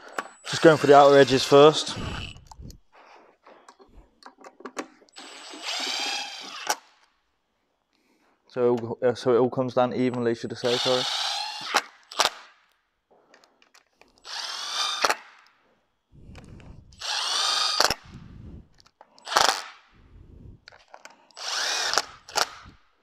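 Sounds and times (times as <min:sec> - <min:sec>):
electric screwdriver running: 0:05.2 - 0:06.8, 0:14.2 - 0:15.2, 0:16.4 - 0:18.2, 0:19.2 - 0:19.7, 0:21.4 - 0:22.8.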